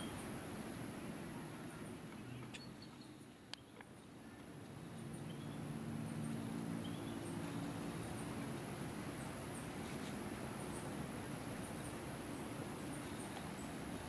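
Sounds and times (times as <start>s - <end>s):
faint bird chirps: 1.5s - 8.4s.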